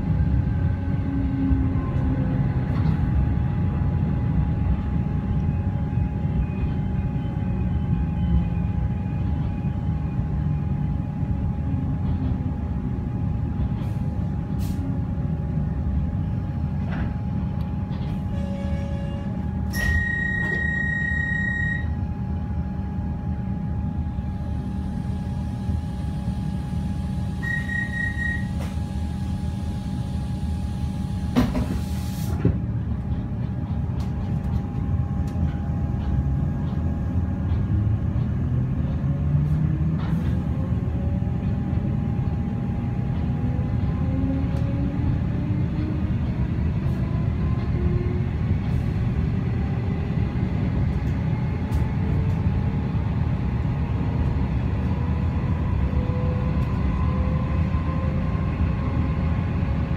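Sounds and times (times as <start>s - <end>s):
train low rumble: 0.0s - 59.9s
train motor whine: 15.7s - 59.9s
hiss of air: 31.6s - 32.4s.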